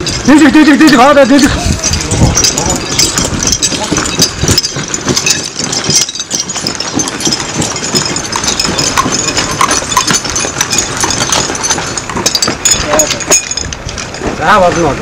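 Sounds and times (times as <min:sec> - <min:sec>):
metal hose couplings knocking: 0:00.0 - 0:15.0
footsteps on gravel: 0:01.2 - 0:15.0.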